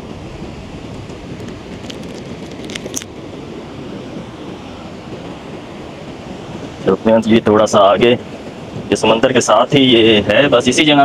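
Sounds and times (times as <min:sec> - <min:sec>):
sea waves on shore: 0:00.0 - 0:11.0
wind buffeting microphone: 0:00.0 - 0:11.0.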